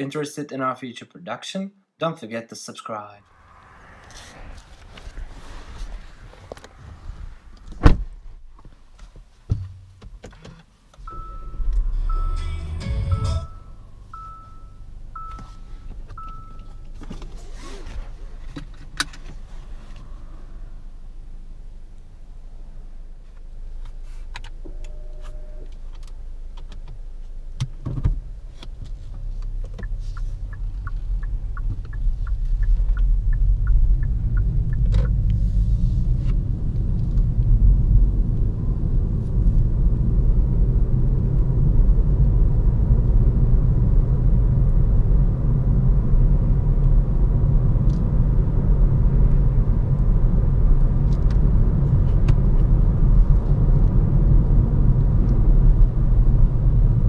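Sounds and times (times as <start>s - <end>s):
car engine and road rumble: 3.2s - 57.0s
thump: 7.6s - 8.8s, 9.5s - 10.1s
short tone: 11.1s - 16.9s, 24.7s - 25.8s
indicator ticking: 29.8s - 35.2s.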